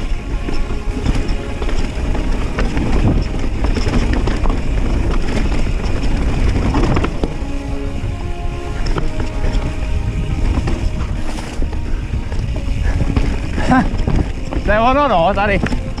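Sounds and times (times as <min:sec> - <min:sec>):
tyres rumbling on dirt: 0:00.0 - 0:16.0
wind buffeting microphone: 0:00.0 - 0:16.0
bike rattling knocks: 0:00.5 - 0:07.4.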